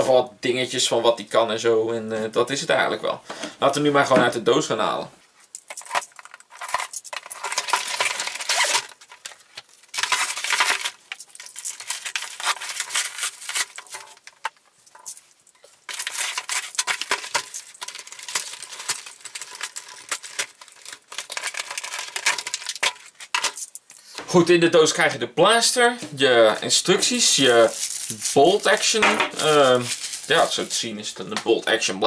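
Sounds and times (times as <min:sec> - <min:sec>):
packaging tearing and rustling: 0:05.4 - 0:24.2, 0:26.9 - 0:31.3.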